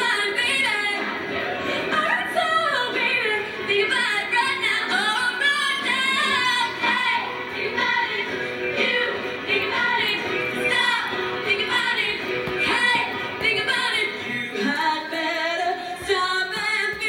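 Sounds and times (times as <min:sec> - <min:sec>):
woman singing lead: 0:00.0 - 0:17.0
choir singing: 0:06.6 - 0:15.2.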